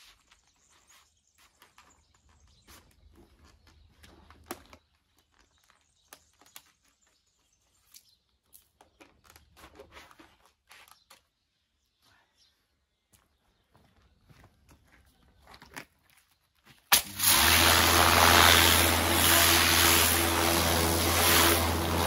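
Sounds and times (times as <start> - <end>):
faint clicks and scuffs: 0.0 - 11.4.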